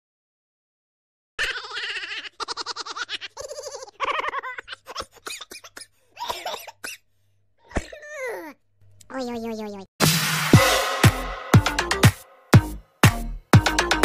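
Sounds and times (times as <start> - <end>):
laughter: 1.4 - 5.2.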